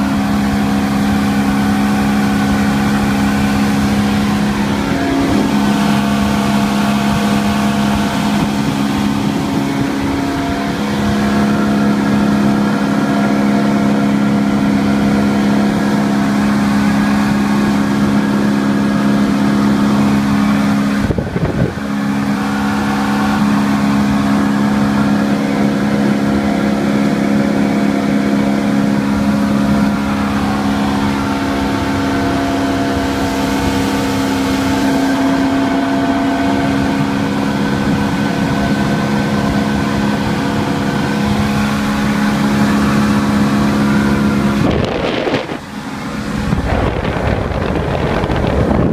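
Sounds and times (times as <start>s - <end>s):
outboard motor droning: 0.0s - 48.9s
wind rush: 0.0s - 48.9s
microphone handling noise: 44.6s - 45.6s, 46.4s - 48.9s.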